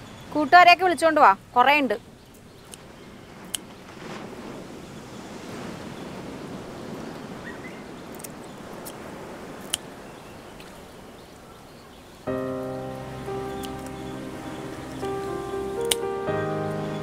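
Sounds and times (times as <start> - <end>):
outdoor background hiss: 0.0 - 17.0
scissors snipping fish: 9.6 - 9.9.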